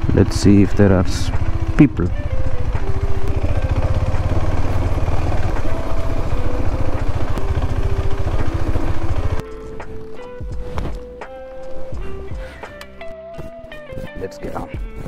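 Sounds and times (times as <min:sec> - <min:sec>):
motorcycle engine running: 0:00.0 - 0:12.8.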